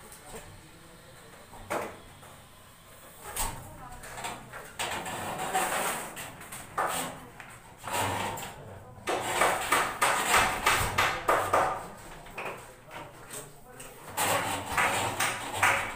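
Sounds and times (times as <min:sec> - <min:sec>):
board scraping on metal frame: 0:04.8 - 0:07.2, 0:14.1 - 0:15.9.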